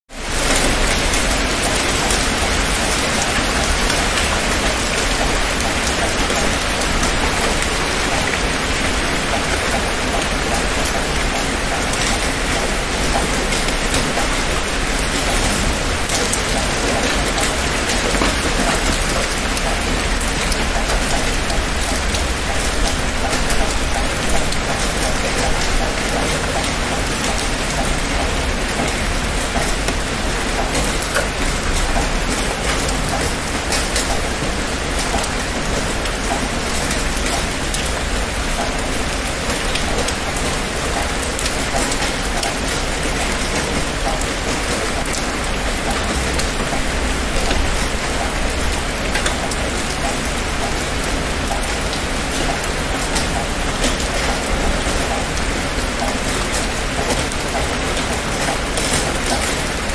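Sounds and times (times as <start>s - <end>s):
heavy rain on hard surface: 0.1s - 59.9s.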